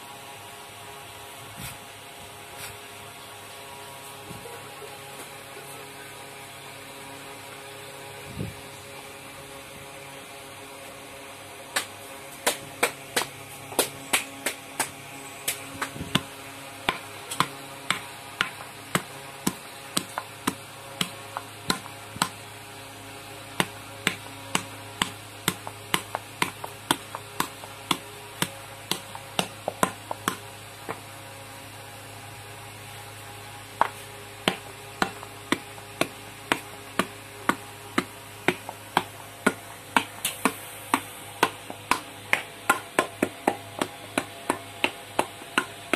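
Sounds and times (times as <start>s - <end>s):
wet clay slapping: 15.5s - 22.4s, 23.6s - 30.4s, 33.8s - 45.9s.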